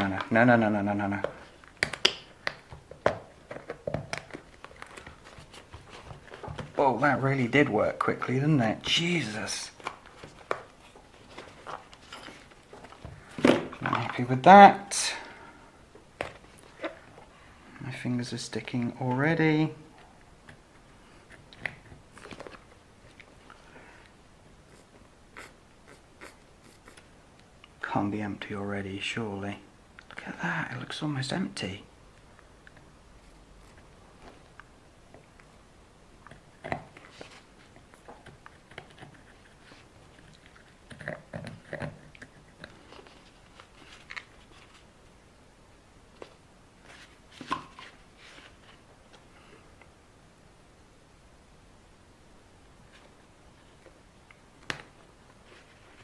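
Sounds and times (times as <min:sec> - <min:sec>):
hands handling noises: 0:00.0 - 0:23.7, 0:36.2 - 0:45.0
crinkling crackle: 0:01.1 - 0:08.2, 0:21.3 - 0:23.7, 0:36.2 - 0:45.0.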